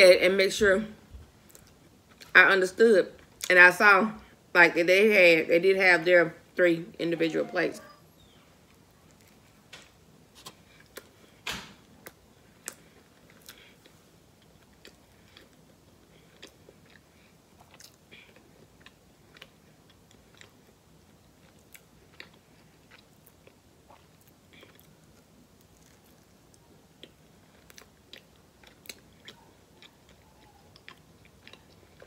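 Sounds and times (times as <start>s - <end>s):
person biting and chewing crust: 11.9s - 20.8s, 21.4s - 32.0s.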